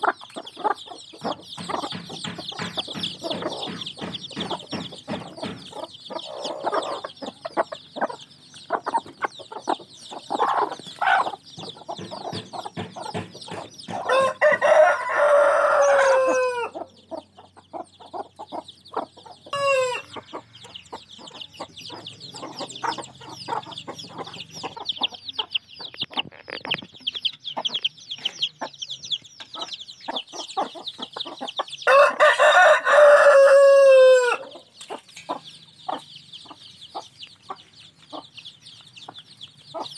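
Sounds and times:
chicks peeping: 0:00.0 - 0:39.9
hen clucking: 0:00.0 - 0:39.9
rooster crowing: 0:14.0 - 0:16.8, 0:19.5 - 0:20.2, 0:31.8 - 0:34.6.

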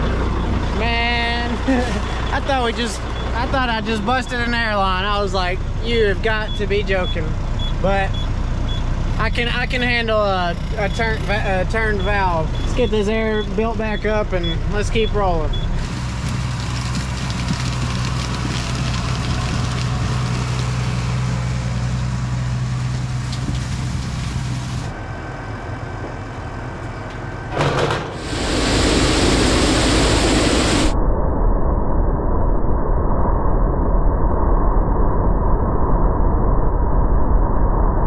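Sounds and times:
combine engine humming: 0:00.0 - 0:30.9
muffled machine noise: 0:00.0 - 0:31.0
machine knock: 0:27.5 - 0:28.2
loud even rushing noise: 0:27.5 - 0:31.0.

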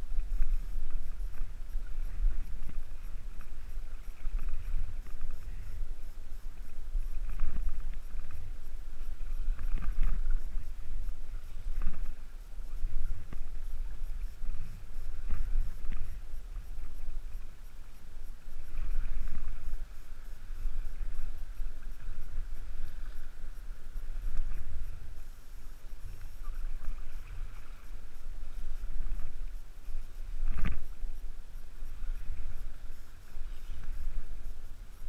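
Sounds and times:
sea water sloshing and lapping: 0:00.0 - 0:35.0
wind rumbling on microphone: 0:00.0 - 0:35.0.

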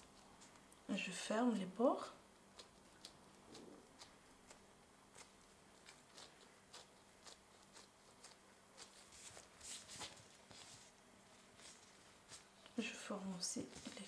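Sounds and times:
faint electrical hum: 0:00.0 - 0:14.0
glove rustle: 0:08.2 - 0:12.8.

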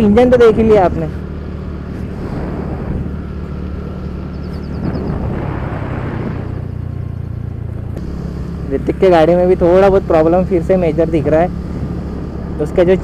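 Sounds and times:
scooter engine running: 0:00.0 - 0:13.0
wind and road noise: 0:00.0 - 0:13.0.

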